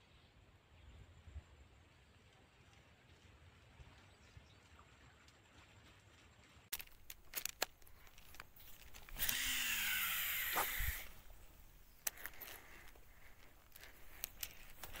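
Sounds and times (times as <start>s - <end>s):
fishing reel clicks: 6.7s - 15.0s
reel spool whirring: 6.7s - 15.0s
spool stopping with thud: 8.3s - 11.2s.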